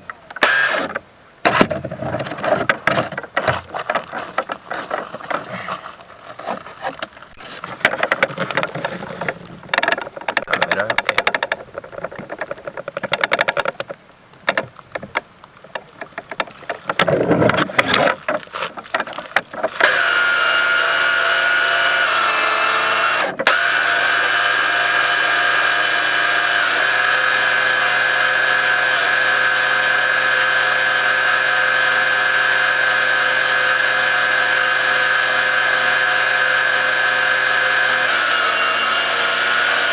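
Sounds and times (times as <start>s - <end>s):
model boat motor whining: 0.4s - 1.0s, 19.8s - 39.9s
water splashing against hull: 1.9s - 19.8s.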